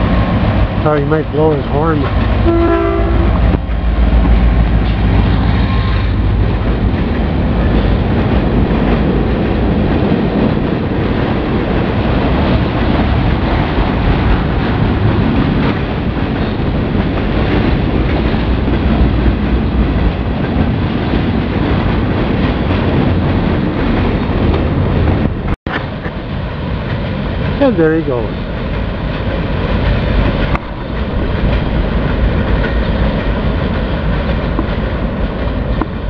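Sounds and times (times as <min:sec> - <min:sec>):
diesel locomotive engine rumble: 0:00.0 - 0:36.0
freight cars rolling on rails: 0:00.0 - 0:36.0.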